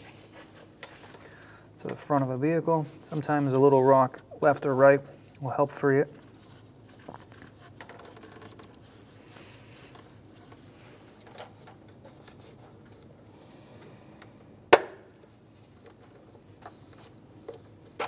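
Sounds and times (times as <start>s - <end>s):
sharp plastic snap: 14.7s - 15.1s.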